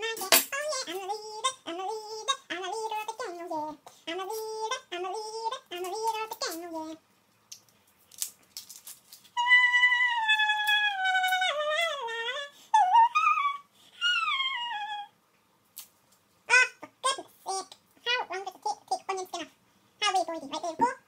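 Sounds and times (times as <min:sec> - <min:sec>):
person singing: 0:00.0 - 0:07.0, 0:09.4 - 0:15.1.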